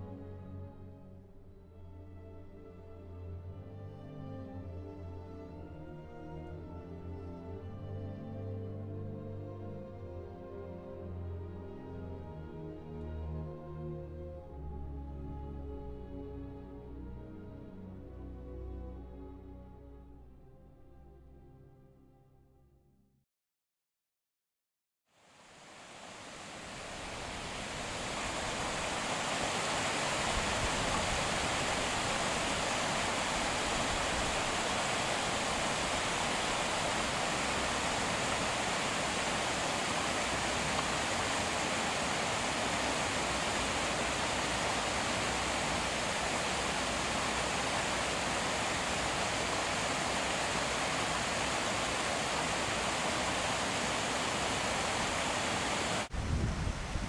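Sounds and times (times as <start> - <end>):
steady rushing hiss: 25.2 - 57.0.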